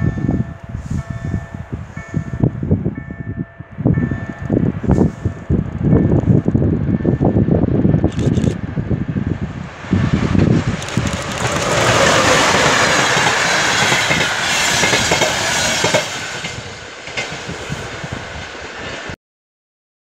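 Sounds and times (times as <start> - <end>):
passing train rushing: 0.0 - 19.2
wheels clattering over rail joints: 10.4 - 17.5.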